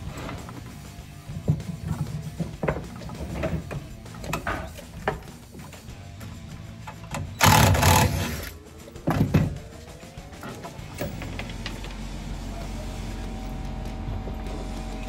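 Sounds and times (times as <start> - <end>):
handling knocks on pipe and wood: 1.3 - 7.3
cordless drill driving screw: 7.4 - 8.6.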